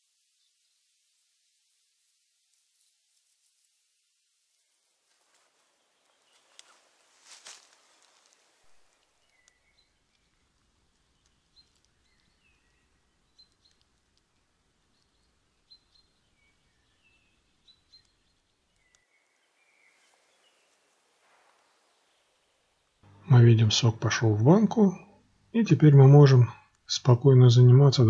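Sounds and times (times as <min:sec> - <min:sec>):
faint clicks: 0:06.3 - 0:19.2.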